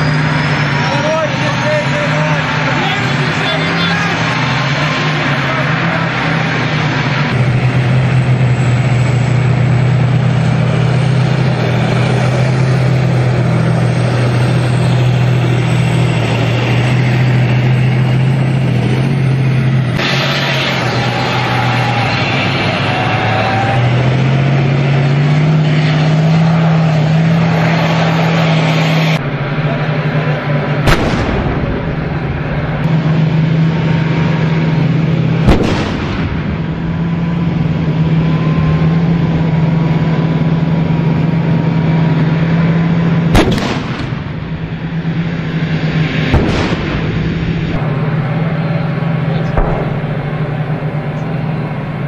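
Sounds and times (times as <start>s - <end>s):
tank engine drone: 0.0s - 52.0s
tank gun firing: 30.8s - 32.1s, 35.4s - 37.0s, 43.3s - 44.5s, 46.2s - 47.5s, 49.5s - 52.0s.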